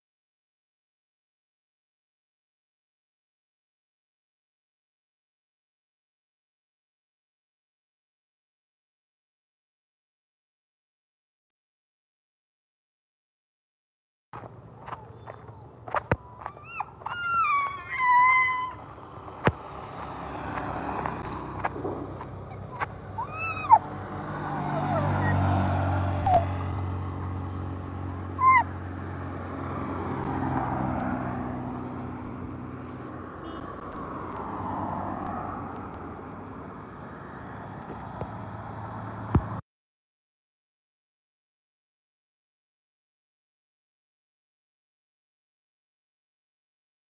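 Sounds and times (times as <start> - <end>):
road traffic passing: 14.4 - 39.6
high falling animal cries: 16.2 - 19.0, 22.5 - 23.9, 28.4 - 28.7.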